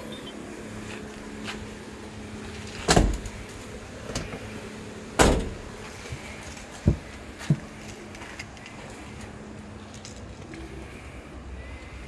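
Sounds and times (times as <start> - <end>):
steady low hum: 0.0 - 12.0
car door slamming: 2.8 - 3.4, 5.2 - 5.8.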